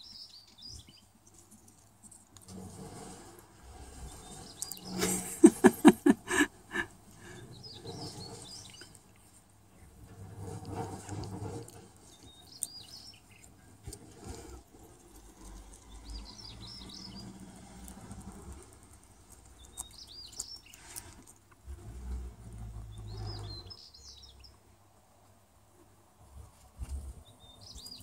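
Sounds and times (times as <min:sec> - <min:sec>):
songbird chirping: 0:00.0 - 0:01.4, 0:04.0 - 0:09.9, 0:12.0 - 0:13.6, 0:15.1 - 0:21.0, 0:22.5 - 0:25.3, 0:27.2 - 0:28.0.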